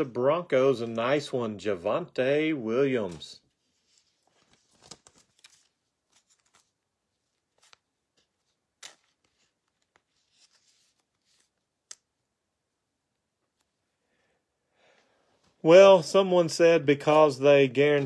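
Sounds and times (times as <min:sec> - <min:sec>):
trading cards rustling: 0:02.9 - 0:12.2.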